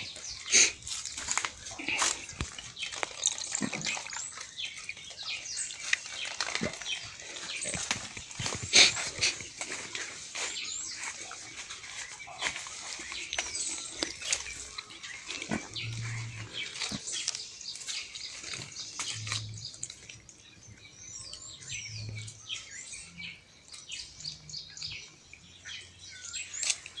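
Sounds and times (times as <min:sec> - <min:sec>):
birds chirping: 0:00.0 - 0:27.0
pig grunting: 0:01.6 - 0:02.4, 0:06.4 - 0:09.6, 0:13.5 - 0:17.2.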